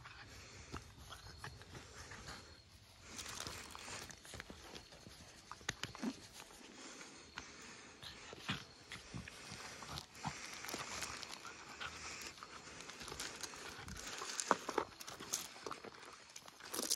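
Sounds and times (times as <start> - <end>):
puppy panting: 0.0 - 16.3
gravel crunching and scraping: 8.2 - 16.9.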